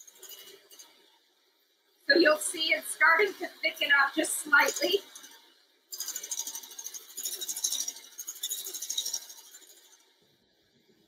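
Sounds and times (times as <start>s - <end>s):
mixer beaters rattling in steel bowl: 0.0s - 1.0s, 3.8s - 10.0s.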